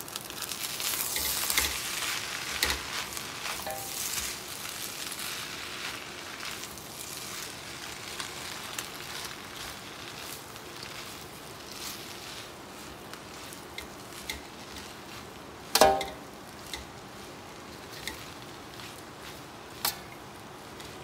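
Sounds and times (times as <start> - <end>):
rice sizzling in a wok: 0.0 - 21.0
spatula stirring and tossing: 0.0 - 21.0
spatula clinking against wok: 3.6 - 4.0, 15.8 - 16.9.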